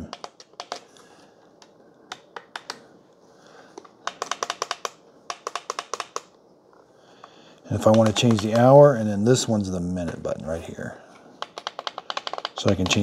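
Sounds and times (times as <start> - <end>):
plastic buttons clicking: 0.1 - 0.9, 1.6 - 2.8, 3.8 - 6.4, 7.8 - 8.8, 11.4 - 13.0.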